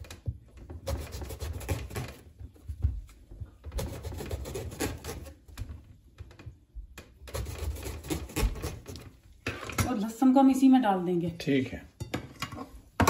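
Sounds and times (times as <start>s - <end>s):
knife cutting eggplant: 0.8s - 2.2s, 3.7s - 5.6s, 7.2s - 9.2s.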